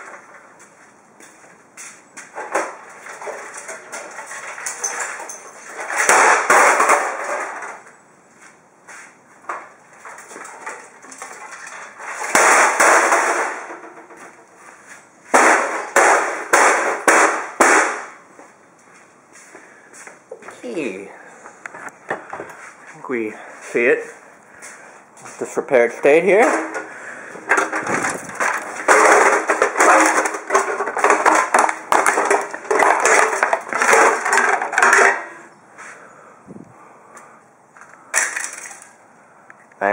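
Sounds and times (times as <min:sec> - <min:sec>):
metal casing crashing on concrete: 0:02.4 - 0:07.9, 0:10.0 - 0:14.5, 0:15.3 - 0:18.2, 0:26.1 - 0:35.5, 0:38.1 - 0:39.0
sharp bangs: 0:05.8 - 0:07.6, 0:12.0 - 0:14.4, 0:15.3 - 0:18.3, 0:26.2 - 0:35.5
sheet metal scraping on concrete: 0:26.2 - 0:35.5.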